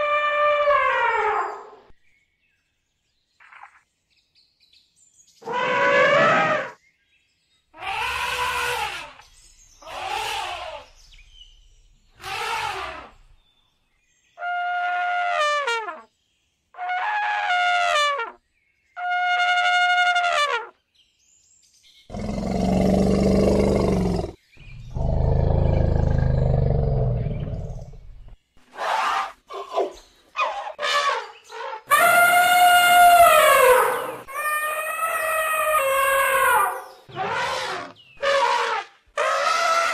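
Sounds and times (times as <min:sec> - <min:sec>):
elephant rough roars: 0:05.4 - 0:06.8, 0:22.1 - 0:28.3
elephant trumpeting: 0:05.4 - 0:06.8, 0:07.8 - 0:09.2, 0:09.8 - 0:10.9, 0:12.2 - 0:13.2, 0:30.4 - 0:39.9.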